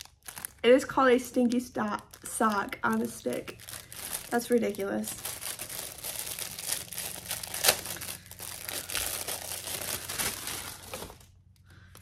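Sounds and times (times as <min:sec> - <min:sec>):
packaging tearing: 0:00.0 - 0:00.6, 0:02.0 - 0:11.3
crinkly packaging crackling: 0:00.0 - 0:12.0.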